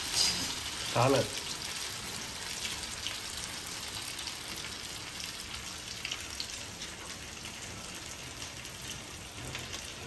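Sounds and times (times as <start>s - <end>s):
fish frying in oil: 0.0s - 10.0s.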